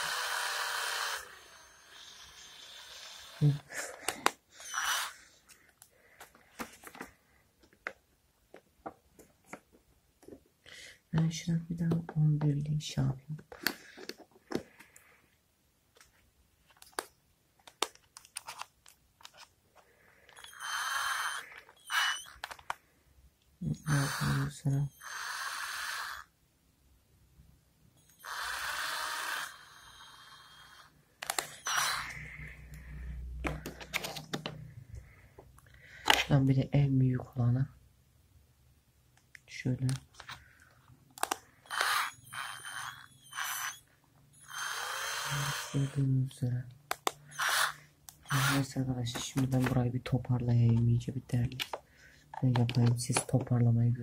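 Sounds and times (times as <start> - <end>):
plastic and metal scraping: 31.2 - 34.8, 46.9 - 49.9, 50.5 - 53.6.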